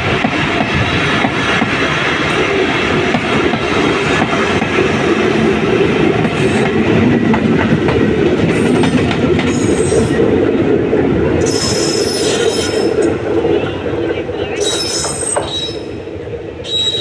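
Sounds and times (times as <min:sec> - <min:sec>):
train wheels rumbling and clattering: 0:00.0 - 0:17.0
high wheel squeal: 0:11.4 - 0:13.0, 0:14.6 - 0:15.9, 0:16.6 - 0:17.0.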